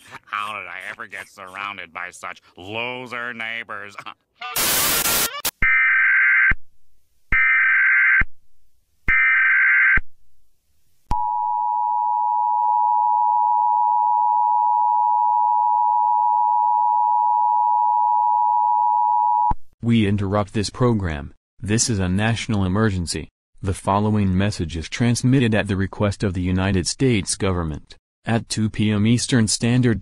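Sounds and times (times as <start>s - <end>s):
burst of static: 4.5s - 5.5s
screeching digital bursts: 4.5s - 5.5s.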